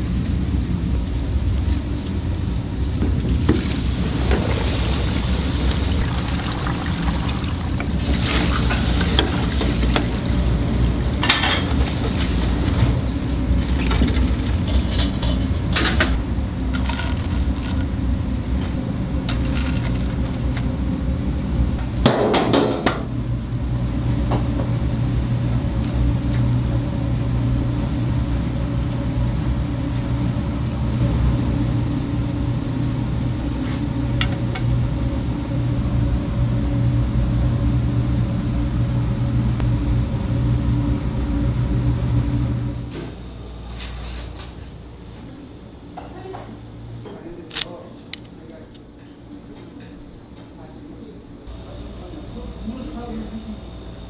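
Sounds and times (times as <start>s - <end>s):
steady low hum: 0.0s - 54.0s
metal cookware clinking and clattering: 11.2s - 11.8s.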